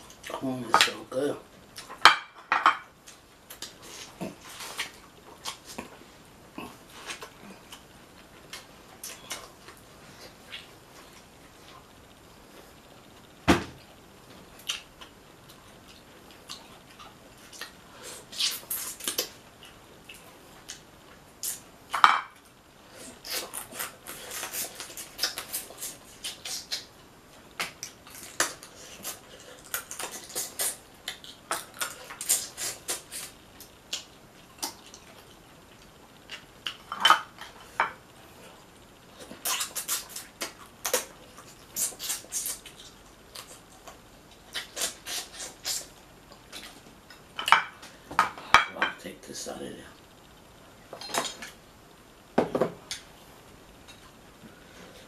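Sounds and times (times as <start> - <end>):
person chewing and smacking: 14.6 - 20.8, 21.4 - 26.9, 27.6 - 37.8, 39.1 - 48.4.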